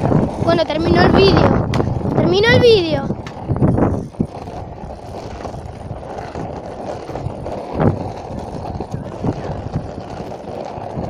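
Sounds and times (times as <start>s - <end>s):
skateboard wheels rolling on asphalt: 0.0s - 11.0s
skateboard knock: 1.6s - 2.2s, 3.1s - 11.0s.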